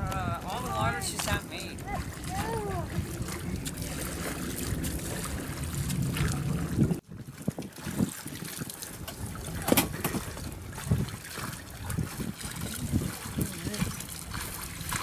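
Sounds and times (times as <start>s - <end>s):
oars splashing in water: 0.0s - 15.0s
wind buffeting microphone: 0.0s - 15.0s.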